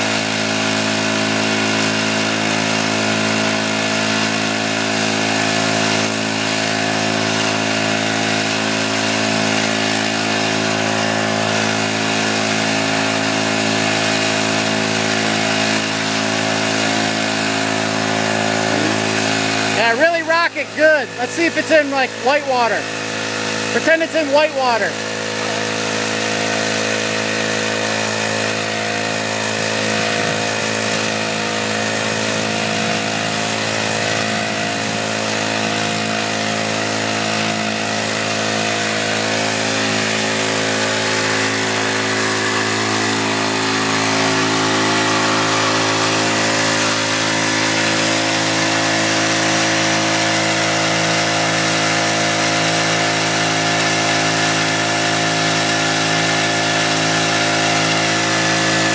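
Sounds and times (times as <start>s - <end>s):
motor running steadily: 0.0s - 58.9s
water washing: 16.6s - 25.7s.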